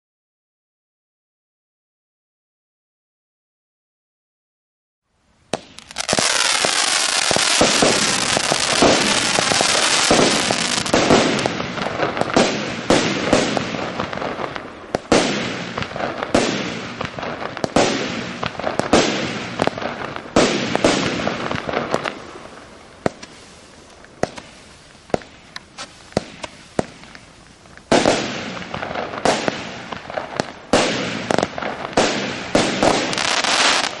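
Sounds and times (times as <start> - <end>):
firework cake shots bursting: 5.6 - 14.0.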